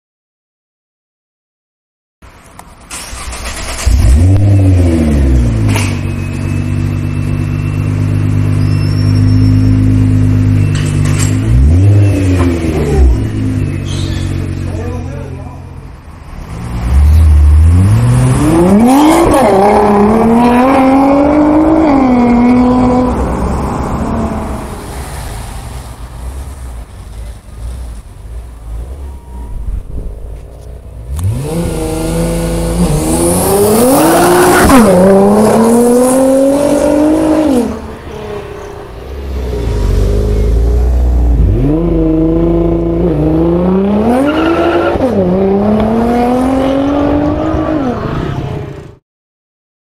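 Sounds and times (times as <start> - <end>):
car engine revving hard: 16.6 - 23.2, 31.1 - 37.8, 39.4 - 48.7.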